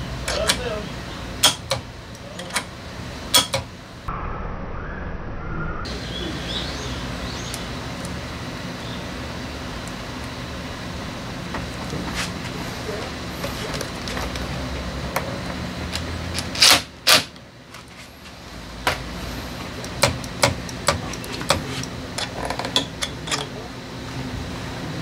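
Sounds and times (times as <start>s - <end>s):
low hum: 0.9s - 25.0s.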